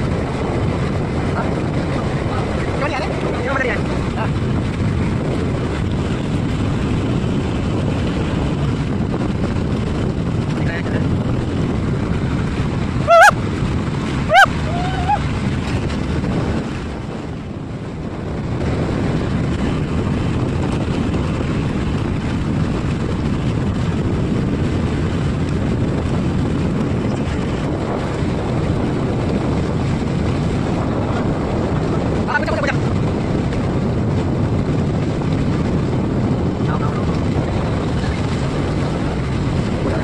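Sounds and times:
motorboat engine running: 0.0s - 40.0s
water washing past hull: 0.0s - 40.0s
wind on microphone: 0.0s - 40.0s
high rising and falling calls: 13.1s - 13.4s, 14.3s - 15.2s.

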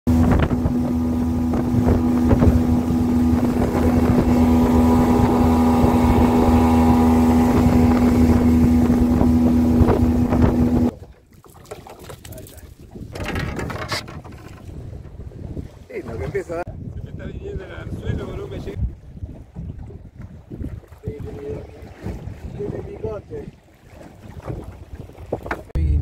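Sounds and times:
outboard engine droning: 0.1s - 11.3s
water rushing past hull: 0.1s - 26.0s.

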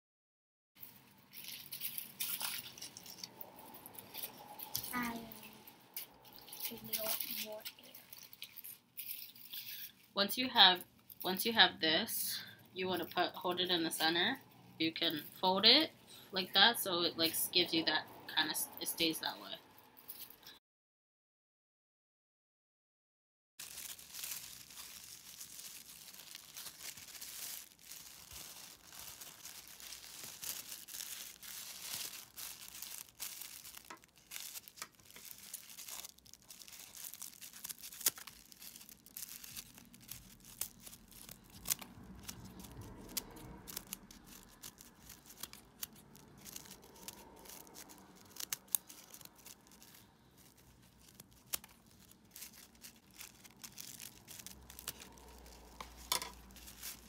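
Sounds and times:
paper crinkling: 0.8s - 10.2s, 23.6s - 57.0s
scissors snipping paper: 30.3s - 57.0s.

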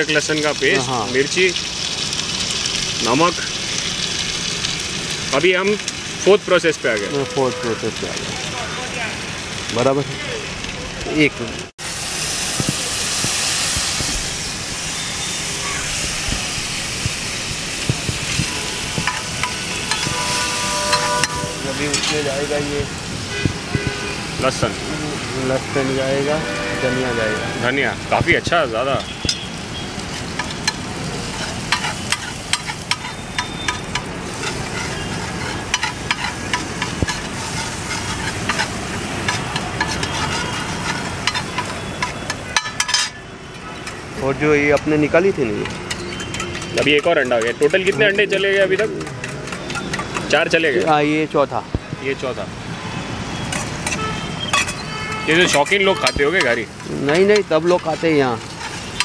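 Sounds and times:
water sizzling on hot griddle: 0.0s - 59.0s
metal spatula scraping griddle: 15.2s - 22.8s, 30.0s - 44.0s, 53.4s - 59.0s.

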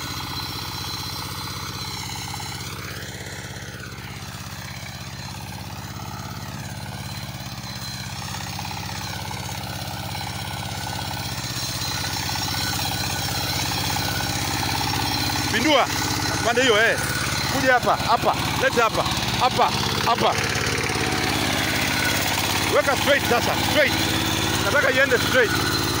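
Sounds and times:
diesel tractor engine running: 0.0s - 26.0s.

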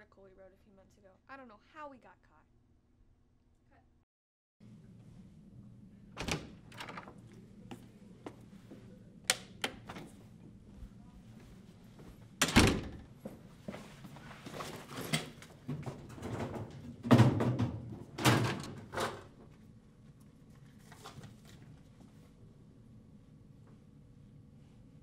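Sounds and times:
door shutting with thud: 6.2s - 7.0s, 12.4s - 13.1s.

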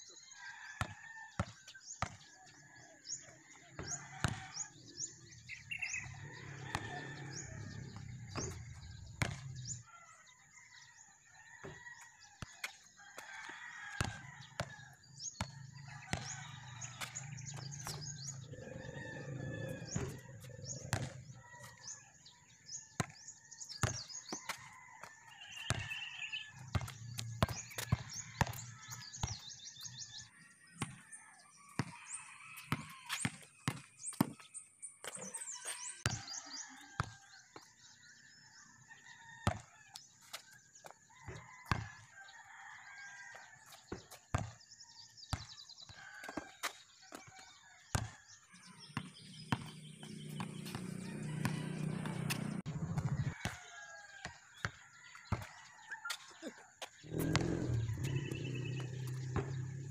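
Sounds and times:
basketball bouncing on concrete: 0.8s - 9.8s, 10.8s - 37.9s, 39.4s - 42.3s, 43.0s - 59.9s
ball hitting hoop: 8.3s - 9.8s, 57.1s - 59.9s
birds calling: 15.4s - 22.0s, 48.5s - 53.6s, 54.6s - 59.9s.

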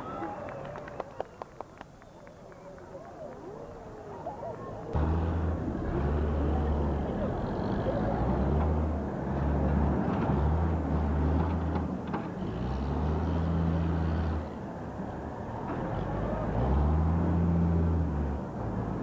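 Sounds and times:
murmur of crowd voices: 0.0s - 12.7s, 14.0s - 18.6s
heavy diesel machinery drone: 5.0s - 19.0s.

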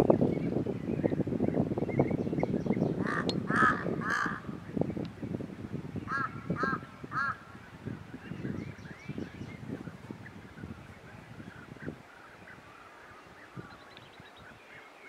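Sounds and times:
wind noise on microphone: 0.0s - 15.0s
birds rolling calls: 2.7s - 4.8s, 6.1s - 15.0s.

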